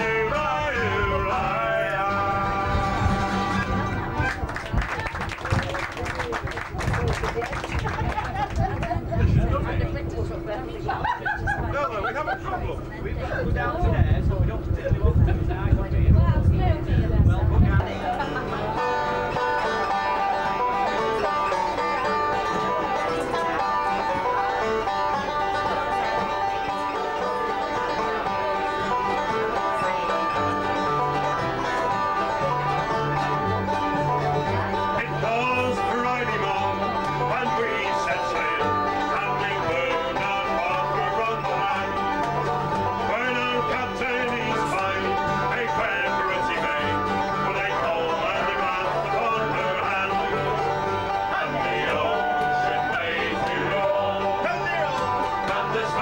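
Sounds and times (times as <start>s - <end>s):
five-string banjo: 0.0s - 5.6s, 16.6s - 56.0s
acoustic guitars: 0.0s - 13.4s, 16.2s - 56.0s
fiddle: 0.0s - 13.8s, 15.5s - 56.0s.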